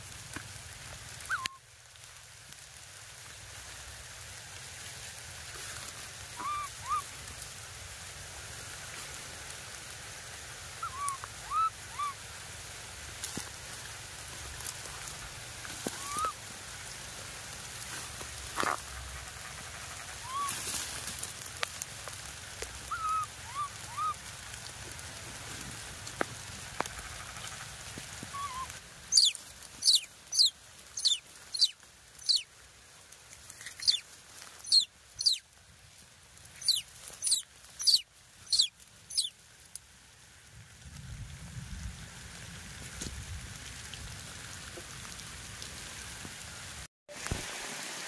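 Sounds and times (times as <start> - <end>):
baby monkey squeaking: 1.3 - 1.6, 6.4 - 7.0, 10.8 - 12.2, 20.2 - 20.5, 22.9 - 24.2, 28.3 - 32.5, 33.8 - 34.0, 34.6 - 35.4, 36.6 - 39.3.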